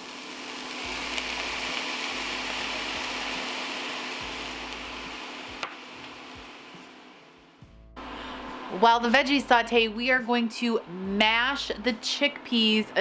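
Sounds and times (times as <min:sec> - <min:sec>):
vegetables sizzling in a skillet: 0:00.0 - 0:07.1.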